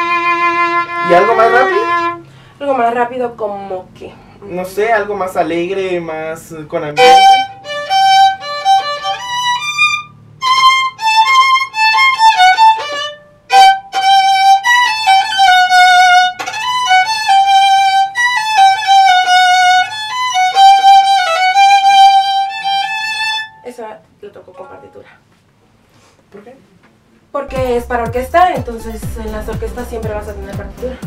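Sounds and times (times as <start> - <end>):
solo violin melody: 0.0 - 2.3, 6.8 - 23.6.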